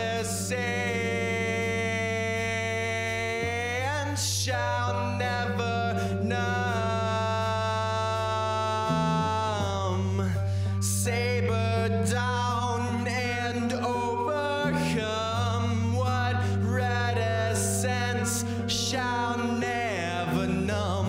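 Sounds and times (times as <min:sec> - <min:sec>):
bass and guitar drone: 0:00.0 - 0:21.0
male singer holding notes: 0:00.0 - 0:21.0.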